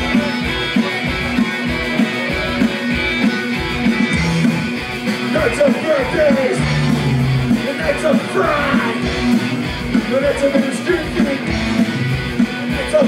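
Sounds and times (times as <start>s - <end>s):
punk rock band playing: 0.0s - 13.0s
shouted vocals: 5.4s - 9.3s.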